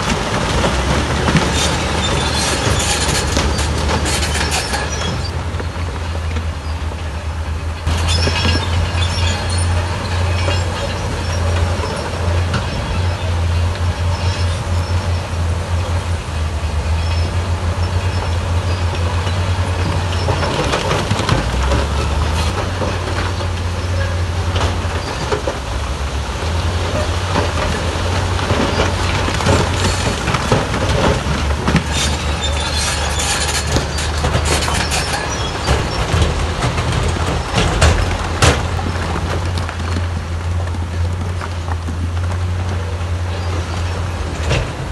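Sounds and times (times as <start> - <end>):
rocks clattering and tumbling: 0.0 - 6.5, 17.0 - 44.9
diesel engines humming: 0.0 - 44.9.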